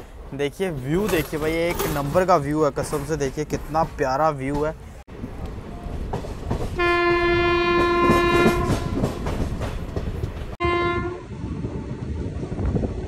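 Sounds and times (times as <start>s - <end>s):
train wheels rumbling and clattering: 0.0s - 10.6s
train horn: 6.8s - 9.4s, 10.6s - 12.2s.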